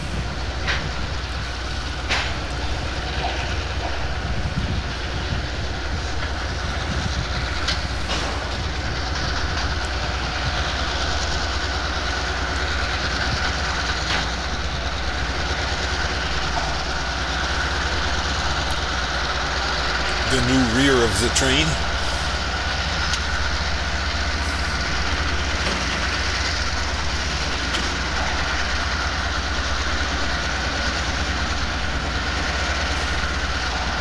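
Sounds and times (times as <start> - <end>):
diesel locomotives running: 0.0 - 34.0
freight train passing: 0.0 - 34.0
wheels clicking over rail joints: 21.8 - 34.0.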